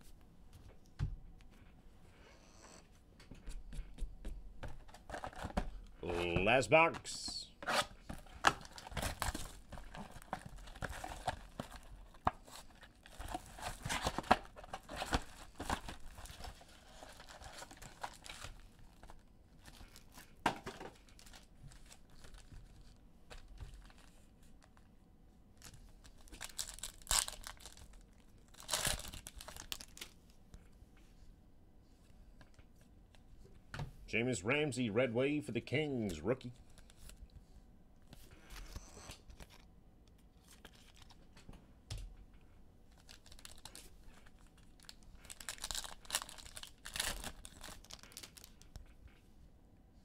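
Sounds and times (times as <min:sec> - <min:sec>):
plastic wrap and cardboard tearing: 0:07.6 - 0:19.1, 0:26.2 - 0:30.0, 0:43.0 - 0:48.6
foil pack ripping: 0:26.3 - 0:30.0, 0:44.8 - 0:48.6.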